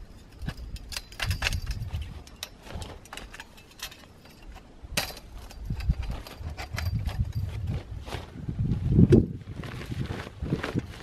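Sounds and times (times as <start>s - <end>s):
metal tent poles clinking: 0.0s - 7.8s.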